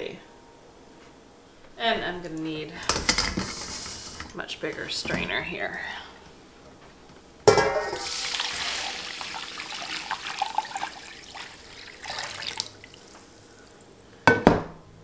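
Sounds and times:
metal pot clanking: 0:07.4 - 0:10.9
tea pouring and splashing into bowl: 0:07.9 - 0:13.4.

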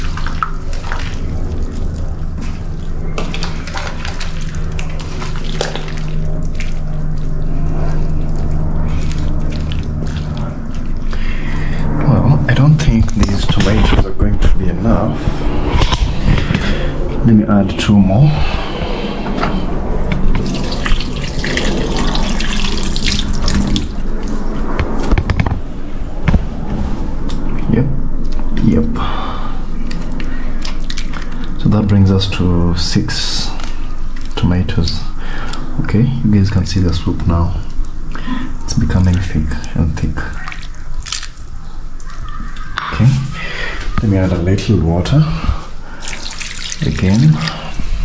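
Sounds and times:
water splashing on hands: 0:00.0 - 0:11.2, 0:20.4 - 0:24.3, 0:30.0 - 0:31.6, 0:40.2 - 0:43.9, 0:45.8 - 0:48.0
steady low hum: 0:00.0 - 0:48.0
soup sloshing in pot: 0:45.9 - 0:47.7.

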